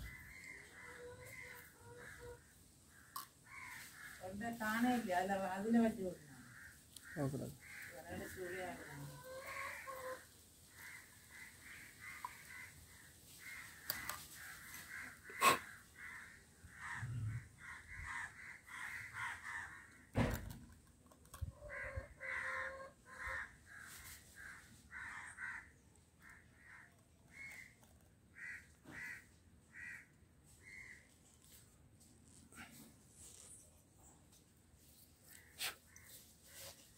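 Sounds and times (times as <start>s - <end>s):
crows cawing: 0.0s - 4.6s, 5.7s - 20.1s, 21.5s - 31.1s
thump: 20.1s - 20.6s.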